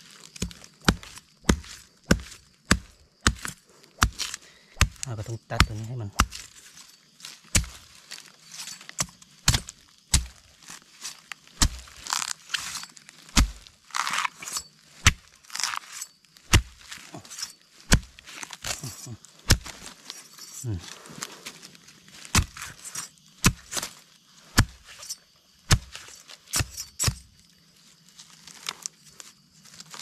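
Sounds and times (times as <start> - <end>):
stalk and leaves crunching: 0.0 - 30.0
knife chopping plant stem: 0.4 - 6.5, 7.5 - 7.8, 9.0 - 10.5, 11.6 - 15.7, 16.5 - 19.8, 22.3 - 23.8, 24.6 - 24.9, 25.7 - 26.0.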